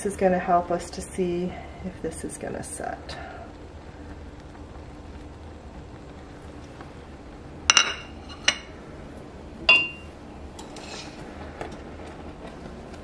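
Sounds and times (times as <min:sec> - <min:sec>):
ceramic plate set on stone: 0:07.7 - 0:08.7, 0:09.7 - 0:10.0.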